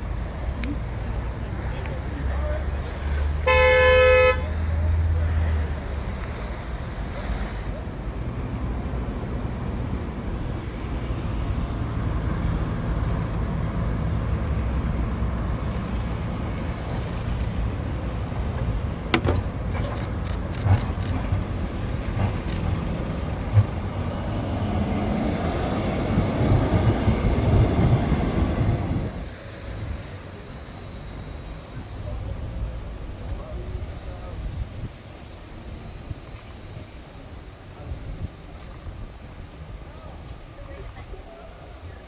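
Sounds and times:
tram rumbling on rails: 0:00.0 - 0:42.0
sharp clicks of tram: 0:01.6 - 0:03.5, 0:05.8 - 0:10.8, 0:11.4 - 0:31.1, 0:38.5 - 0:39.2.

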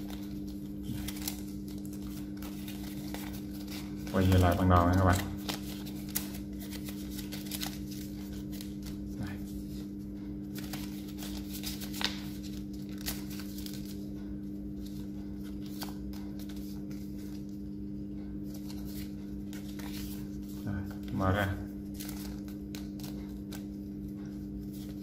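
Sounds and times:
paper rustling and crinkling: 0:00.0 - 0:25.0
steady low hum: 0:00.0 - 0:25.0.

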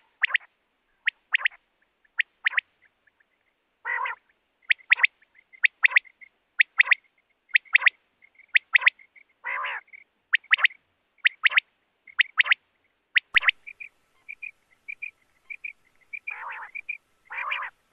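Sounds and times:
quail whistled call: 0:00.0 - 0:01.6, 0:03.9 - 0:12.6, 0:13.2 - 0:17.8
low buzzy bird calls: 0:13.2 - 0:17.9.

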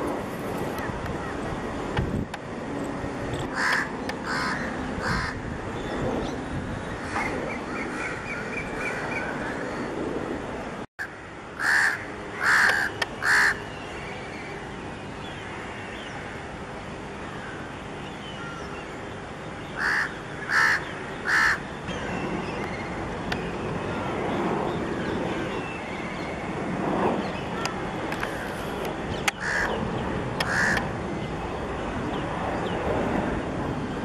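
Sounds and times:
crows cawing: 0:03.5 - 0:05.4, 0:11.0 - 0:13.6, 0:19.8 - 0:21.6, 0:29.4 - 0:29.8, 0:30.4 - 0:30.8.

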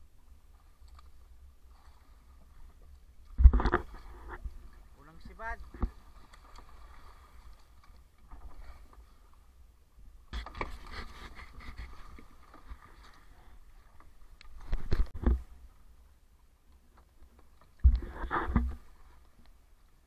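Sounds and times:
sea water splashing against hull: 0:00.3 - 0:09.2.

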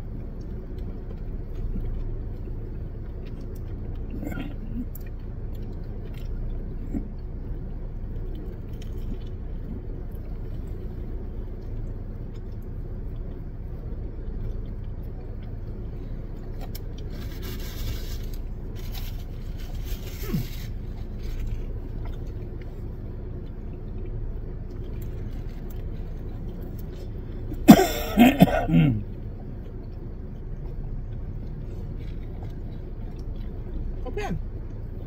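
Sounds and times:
low hum inside car cabin: 0:00.0 - 0:35.0
crinkling: 0:14.4 - 0:27.6.

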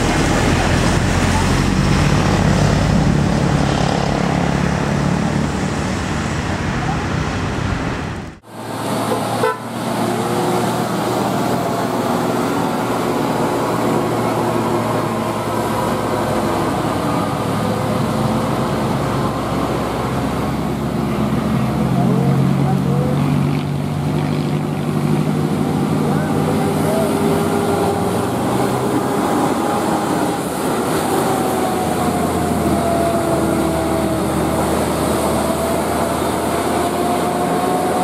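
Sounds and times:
bus engines running: 0:00.0 - 0:38.0
passing traffic: 0:00.0 - 0:38.0
multi-tone bus horn tune: 0:08.9 - 0:10.5.

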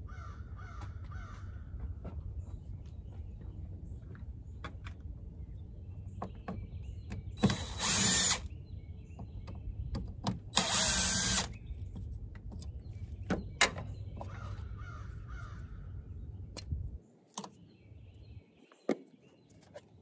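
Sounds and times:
cordless drill spinning: 0:07.4 - 0:08.5, 0:10.6 - 0:11.6.

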